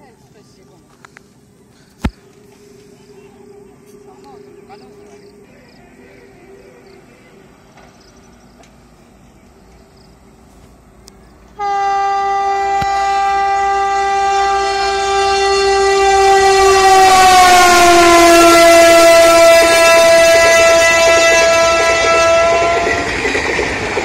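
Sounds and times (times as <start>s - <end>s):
train horn long blast: 11.6s - 23.2s.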